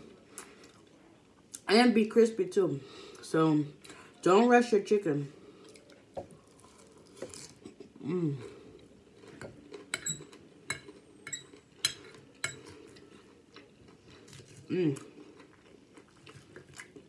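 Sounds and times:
person humming: 8.0s - 8.5s, 14.7s - 15.1s.

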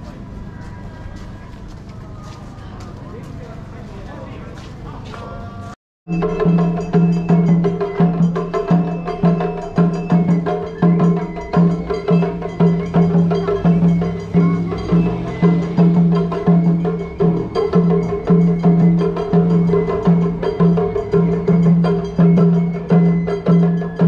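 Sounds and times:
rhythmic percussion strokes: 0.0s - 24.0s
steady pitched tones: 6.1s - 24.0s.

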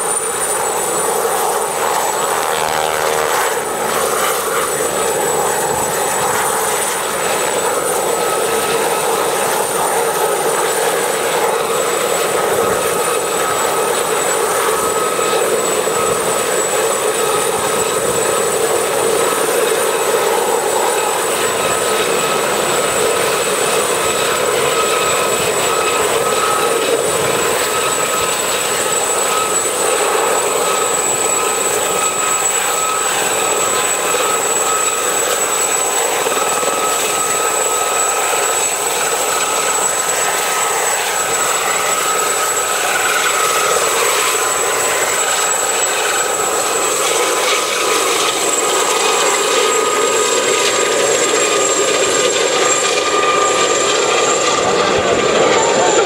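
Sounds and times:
helicopter rotor noise: 0.0s - 56.0s
helicopter turbine whine: 0.0s - 56.0s.

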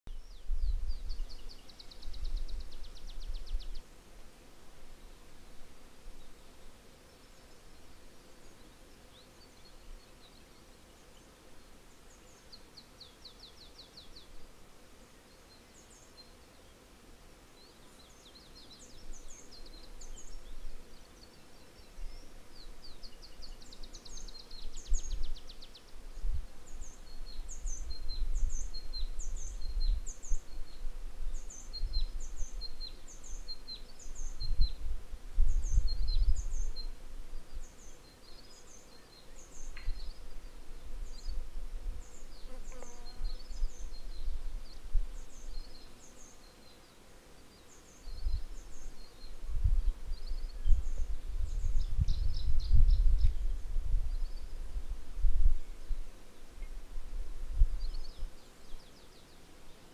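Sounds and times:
wind rumble on microphone: 0.1s - 3.9s, 22.8s - 37.7s, 39.5s - 45.7s, 48.0s - 58.8s
small songbirds chirping: 0.1s - 4.0s, 4.7s - 59.9s.

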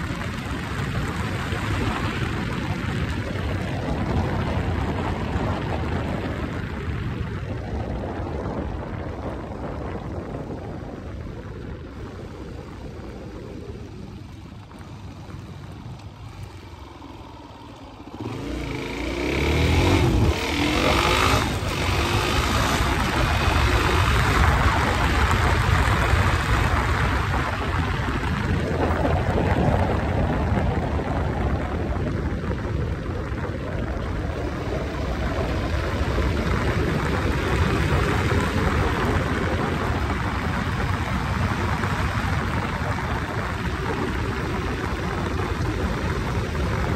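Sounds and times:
wind on microphone: 0.0s - 46.9s
motorcycle engine revving: 12.7s - 29.0s.

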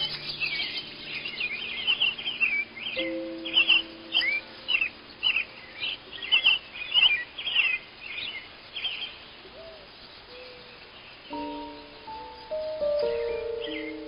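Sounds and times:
songbird chirping and whistling: 0.0s - 14.0s.

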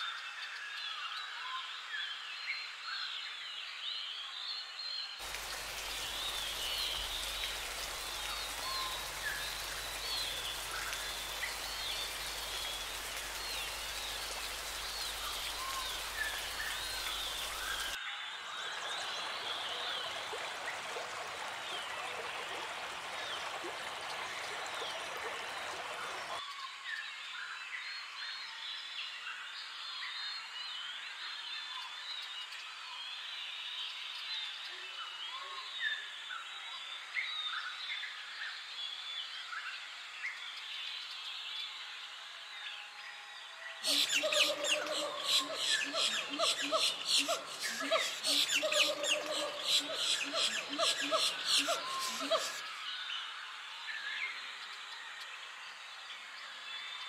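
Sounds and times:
waterfall rushing: 5.2s - 18.0s, 43.9s - 52.6s.

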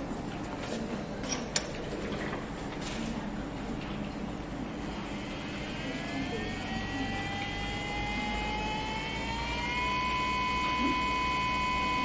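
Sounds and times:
electric motor whine rising: 5.0s - 12.0s.

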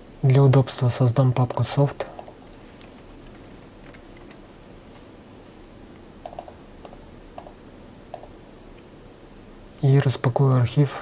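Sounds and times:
steady low hiss: 0.0s - 11.0s
keyboard keystrokes: 2.2s - 4.4s, 6.2s - 7.5s.

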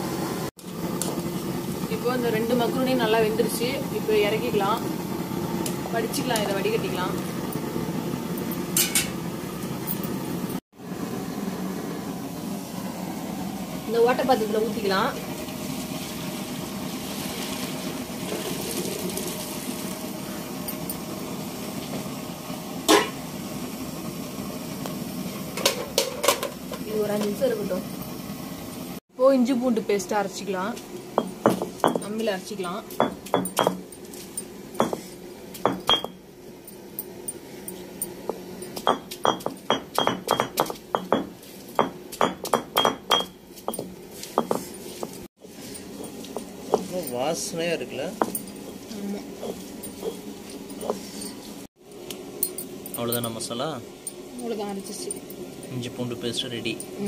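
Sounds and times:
metal pot knocking on floor: 35.7s - 36.2s, 38.8s - 44.6s
stone roller clinking on slab: 37.3s - 51.4s.

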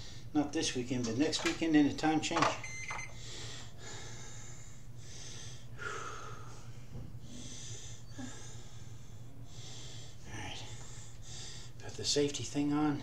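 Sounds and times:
man breathing heavily: 0.0s - 0.3s, 3.1s - 11.8s
steady low hum: 0.0s - 13.0s.

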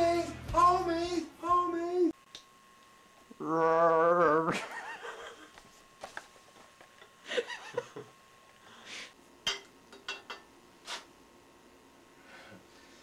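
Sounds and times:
person laughing: 4.2s - 5.6s, 6.9s - 8.2s.

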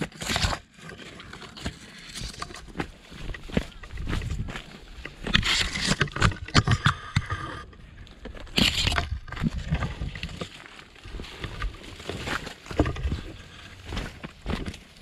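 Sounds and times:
footsteps on trail: 1.0s - 7.1s, 7.7s - 15.0s.

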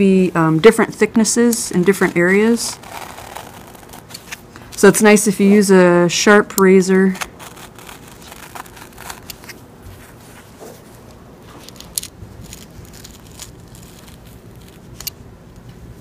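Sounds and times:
knife slicing skin crackles: 7.2s - 9.6s.

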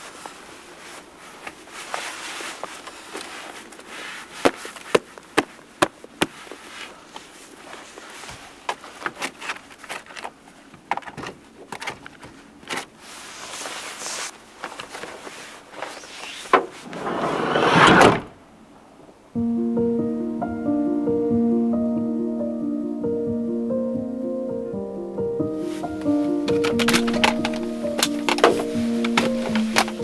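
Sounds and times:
footwear and clothing rustling: 0.0s - 18.4s, 25.4s - 30.0s
boots knocked together: 4.4s - 6.6s
sliding van door closing with bang: 16.5s - 18.4s.

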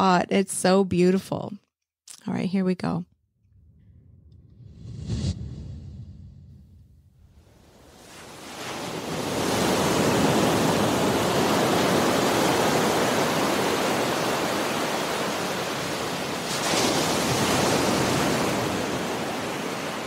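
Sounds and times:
waves breaking: 7.6s - 20.0s.

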